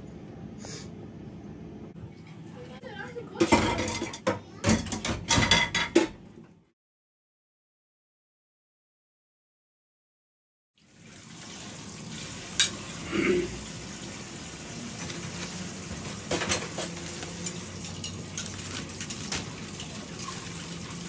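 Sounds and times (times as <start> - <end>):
dishes clinking: 3.4 - 6.2, 12.5 - 12.8, 16.2 - 19.6
steady kitchen hiss: 10.8 - 21.0.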